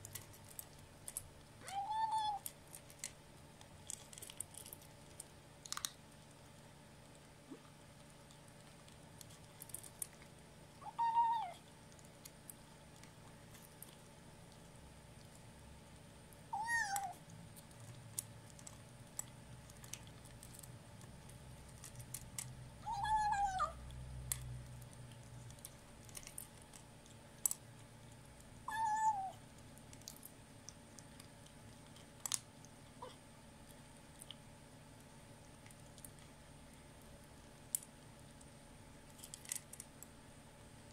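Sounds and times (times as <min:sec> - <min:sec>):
kitten crunching dry food: 0:00.0 - 0:40.9
kitten growl-like nom call: 0:16.6 - 0:17.2, 0:22.8 - 0:23.8, 0:28.7 - 0:29.4.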